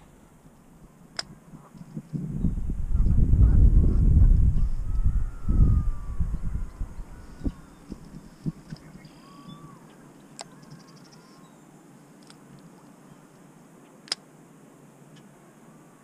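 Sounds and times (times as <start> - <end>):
faint animal calls: 4.5 - 11.6.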